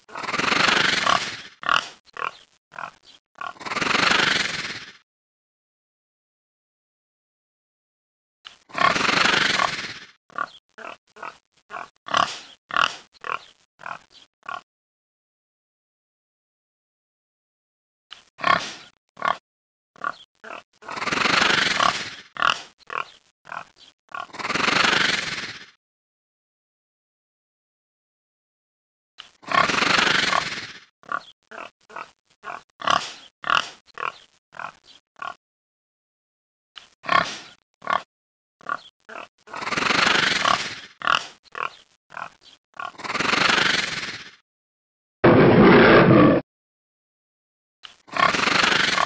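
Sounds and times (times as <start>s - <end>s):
wild boar grunts and squeals: 0.0s - 5.0s, 8.6s - 14.6s, 18.4s - 19.4s, 20.0s - 25.8s, 29.4s - 35.4s, 37.0s - 44.4s, 48.0s - 49.0s.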